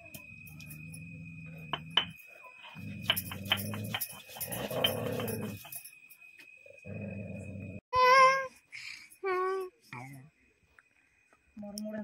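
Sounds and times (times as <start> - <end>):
dog growling low: 6.8 - 7.8.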